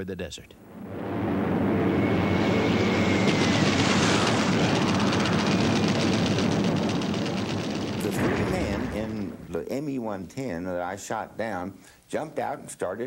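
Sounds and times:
high engine whine: 0.6 - 9.6
piston aircraft engines running: 0.7 - 9.4.

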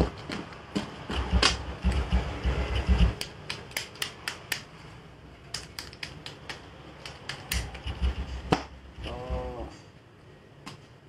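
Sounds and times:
low rumble: 1.1 - 3.2.

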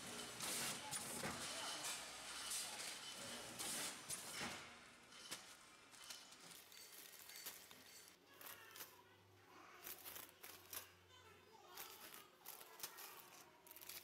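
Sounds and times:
plastic bags crinkling: 11.7 - 14.0.

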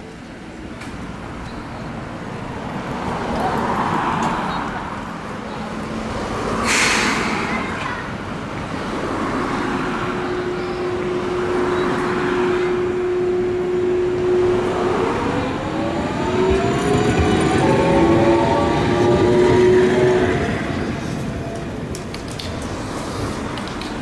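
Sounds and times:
traffic noise: 0.0 - 24.0
tram hiss: 6.1 - 8.0, 22.6 - 24.0.

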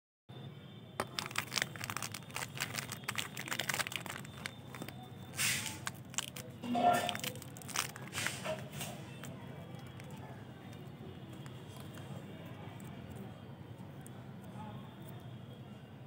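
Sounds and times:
plastic wrappers crinkling: 1.0 - 12.0.

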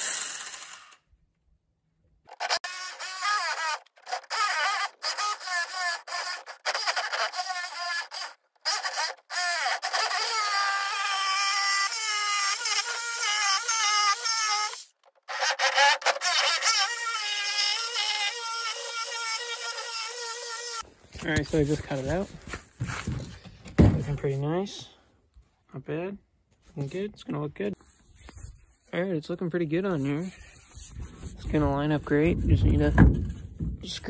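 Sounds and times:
jigsaw cutting plywood: 0.0 - 1.0, 2.3 - 20.8.

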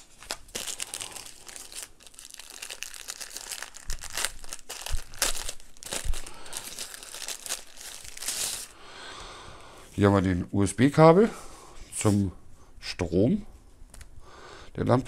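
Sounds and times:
packaging wrap crinkling: 0.0 - 8.8.

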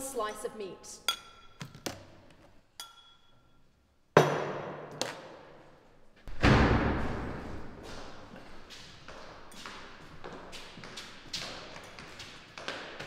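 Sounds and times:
crockery clinking: 2.8 - 3.6
heavy thuds with echo: 6.3 - 7.8.

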